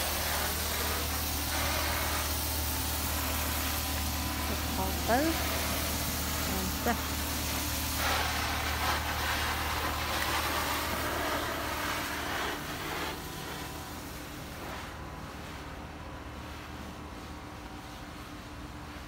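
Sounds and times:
hiss: 0.0s - 15.0s
low machine hum: 0.0s - 19.0s.

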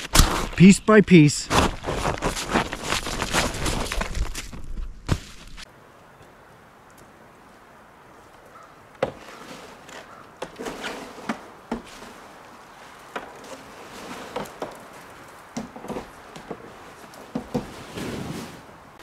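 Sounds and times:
snow shovel chipping ice: 10.6s - 12.3s.

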